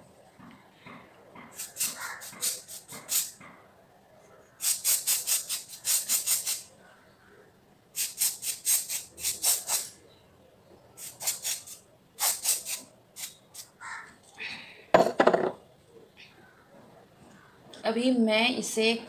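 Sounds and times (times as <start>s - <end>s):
spray bottle hissing sprays: 1.6s - 3.4s, 4.6s - 6.7s, 8.0s - 10.0s, 11.0s - 13.7s.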